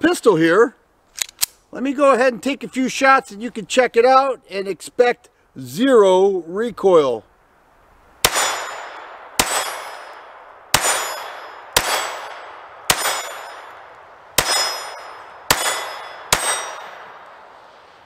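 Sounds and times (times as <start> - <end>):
pistol shots with ringing tail: 8.2 - 17.3.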